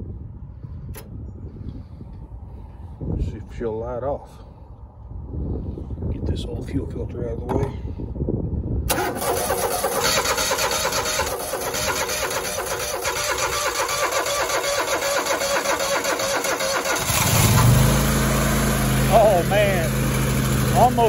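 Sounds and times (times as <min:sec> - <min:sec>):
electric starter cranking engine: 0:08.9 - 0:21.0
mower engine running: 0:08.9 - 0:21.0.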